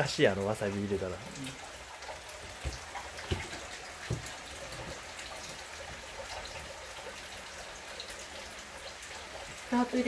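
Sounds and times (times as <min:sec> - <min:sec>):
light dull knocks: 0:02.4 - 0:06.0.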